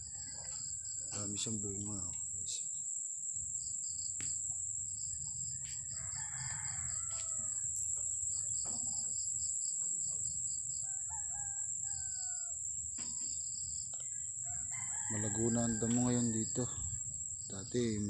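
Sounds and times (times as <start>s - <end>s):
high-pitched insect drone: 0.0s - 18.0s
rooster crowing: 5.4s - 8.0s, 10.7s - 12.7s, 14.3s - 17.0s.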